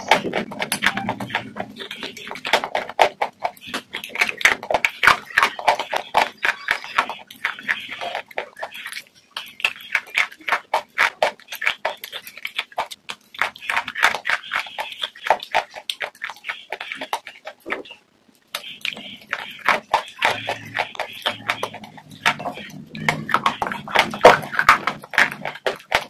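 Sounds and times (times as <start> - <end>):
person chewing crunchy food: 0.0 - 26.0.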